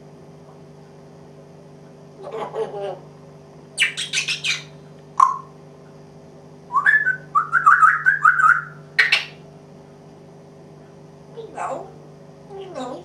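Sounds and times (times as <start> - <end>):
parrot harsh calls: 2.2 - 3.0, 3.8 - 5.5, 6.7 - 9.4, 11.4 - 13.0
parrot whistling: 3.8 - 5.5, 6.7 - 9.4.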